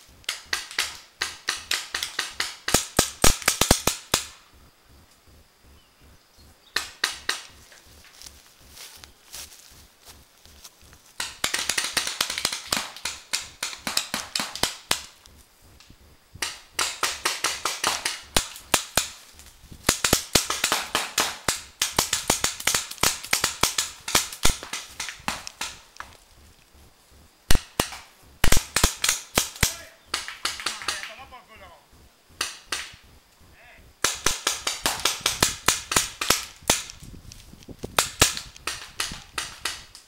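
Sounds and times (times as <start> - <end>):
paintball markers firing: 0.2 - 4.4, 6.8 - 7.6, 11.2 - 15.3, 16.4 - 19.2, 19.8 - 26.2, 27.5 - 31.4, 32.4 - 33.0, 34.0 - 37.1, 37.9 - 40.0.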